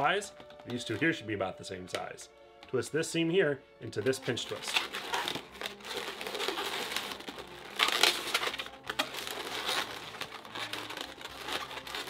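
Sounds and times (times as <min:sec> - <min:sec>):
balloons rubbing and squeaking: 0:04.0 - 0:12.0.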